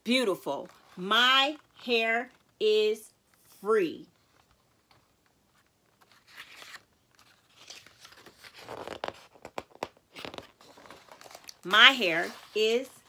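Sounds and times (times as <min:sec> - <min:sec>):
book pages rustling: 0:04.1 - 0:13.0.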